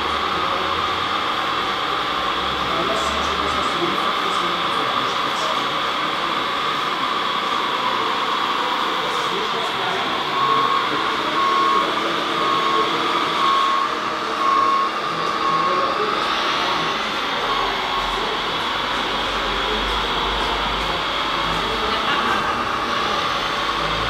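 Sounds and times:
reversing alarm beeps: 9.4s - 20.5s.

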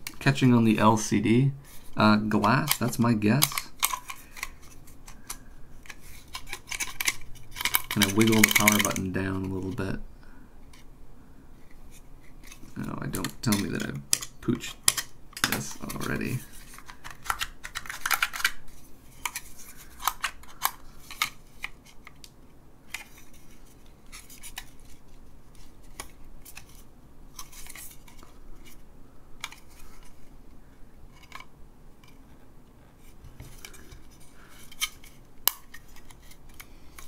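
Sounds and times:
clicks and taps handling device: 2.4s - 9.8s, 29.4s - 30.1s.

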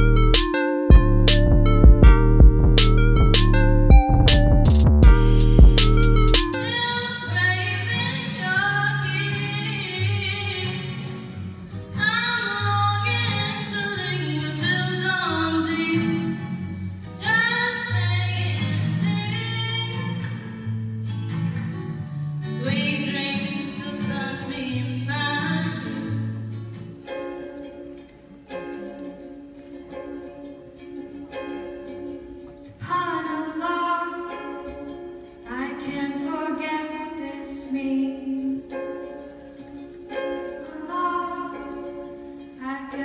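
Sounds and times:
guitar: 0.0s - 43.0s
woman singing slowly: 35.5s - 38.8s.

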